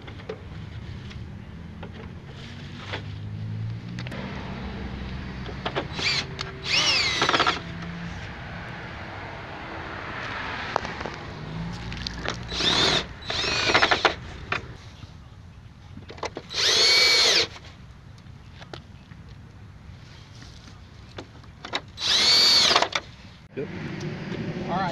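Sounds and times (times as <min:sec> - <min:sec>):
cordless drill driving screws: 0:05.9 - 0:07.6, 0:12.5 - 0:14.2, 0:16.5 - 0:17.5, 0:22.0 - 0:23.0.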